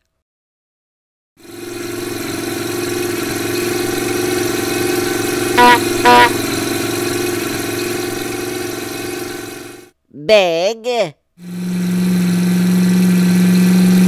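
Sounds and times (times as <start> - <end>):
monster truck engine running: 1.4 - 9.9, 11.4 - 14.0
short horn beeps: 5.6 - 6.6.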